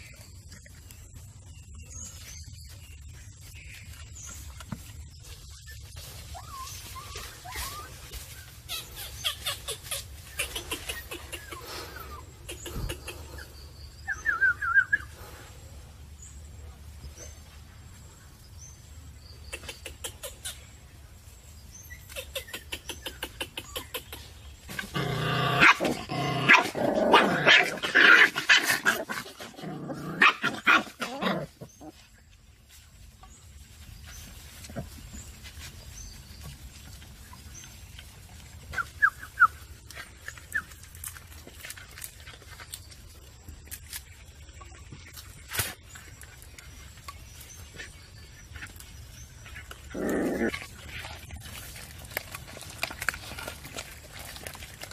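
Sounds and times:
puppies whimpering and yelping: 5.3s - 15.2s, 38.7s - 39.8s.

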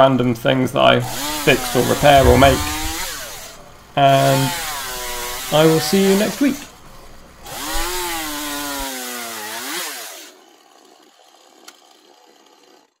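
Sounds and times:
chainsaw cutting log: 1.0s - 3.6s, 4.2s - 6.7s, 7.4s - 10.5s.

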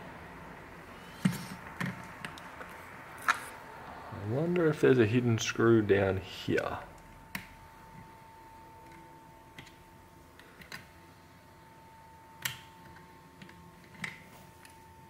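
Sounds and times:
faint steady high tone: 3.7s - 15.0s.

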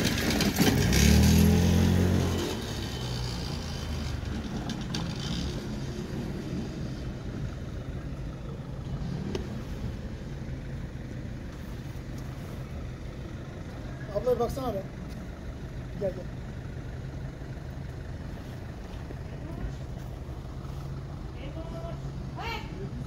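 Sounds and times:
engine dying away: 0.0s - 11.5s
low rumble of engines: 0.0s - 23.0s.

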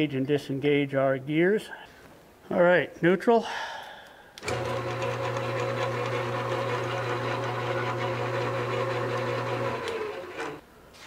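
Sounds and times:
lathe motor hum: 4.4s - 10.6s.

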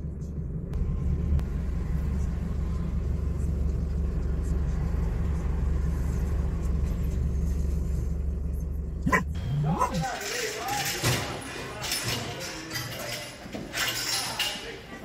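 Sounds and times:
car engine and tyres rumbling: 0.0s - 11.1s.

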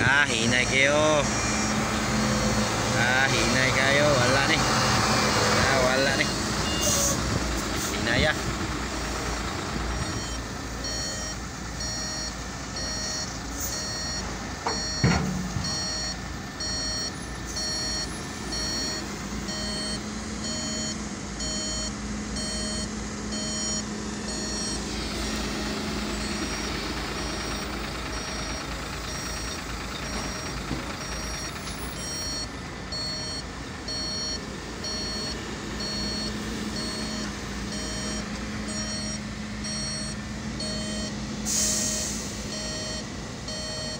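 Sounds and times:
truck engine running: 0.0s - 43.9s
truck reversing alarm beeping: 0.0s - 43.9s.

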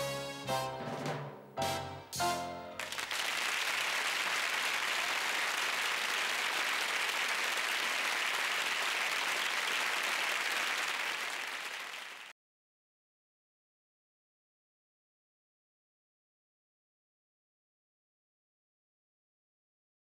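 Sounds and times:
audience applauding: 2.7s - 12.3s.

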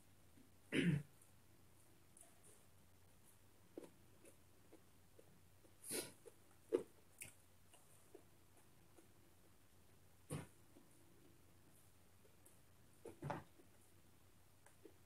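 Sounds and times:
soft eating clicks and taps: 3.7s - 9.2s.

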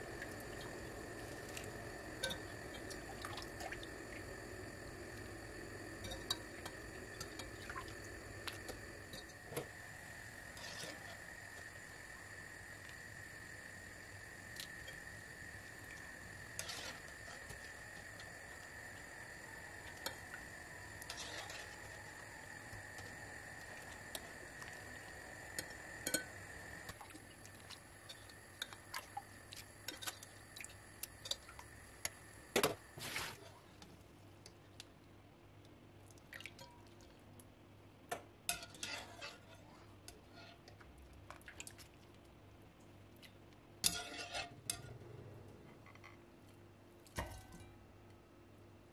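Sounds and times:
faint high hum: 0.0s - 48.9s
water dripping and splashing: 0.1s - 4.3s, 26.9s - 31.7s, 36.0s - 37.1s, 41.3s - 42.2s
metal clinking on pot and glass: 6.0s - 6.5s, 26.0s - 26.3s.

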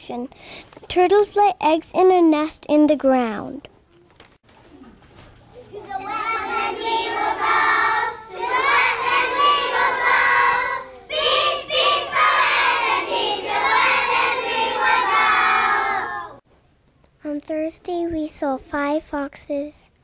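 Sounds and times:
children singing in unison: 5.8s - 16.4s.

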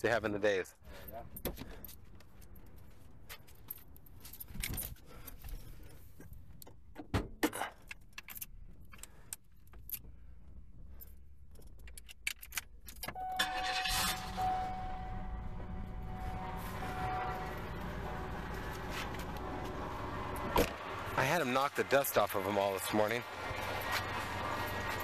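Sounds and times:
keys jangling: 1.3s - 6.0s, 10.9s - 13.2s
steady tone: 13.2s - 21.2s.

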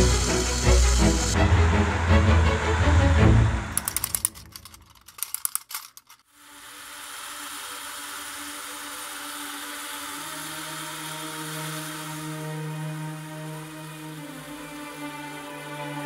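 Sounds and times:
soft drone with held tones: 0.0s - 3.8s, 6.4s - 16.0s
small sharp clicks and ticks: 3.8s - 6.2s.

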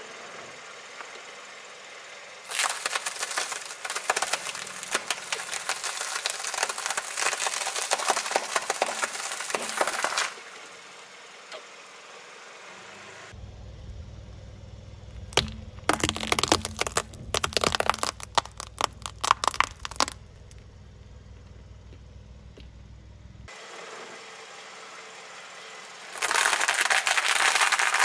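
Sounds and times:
car tyre crushing crackers: 2.4s - 10.8s, 15.1s - 22.8s, 25.6s - 28.0s.

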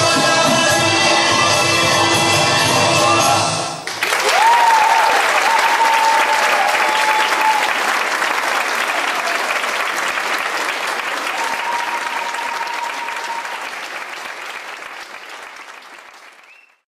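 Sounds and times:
audience applauding: 3.8s - 16.8s.

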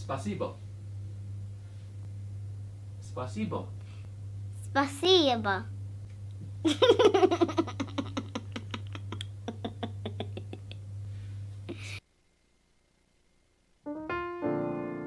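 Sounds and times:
steady low hum: 0.0s - 15.0s
girl giggling: 6.6s - 10.9s, 11.7s - 12.0s
sustained keyboard chord: 13.9s - 15.0s.

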